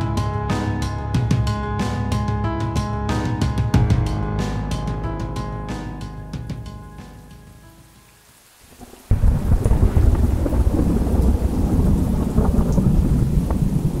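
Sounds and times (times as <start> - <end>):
music: 0.0 - 8.4
steady rain: 5.2 - 14.0
thunder rumble: 8.7 - 14.0.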